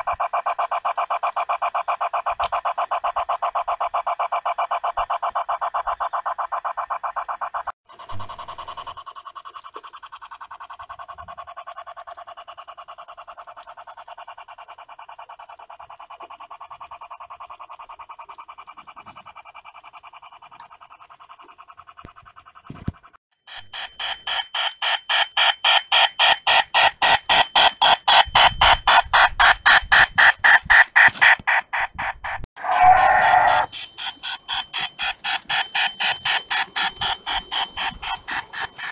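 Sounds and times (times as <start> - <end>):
model steam locomotive chuffing: 5.6 - 29.0, 32.6 - 38.9.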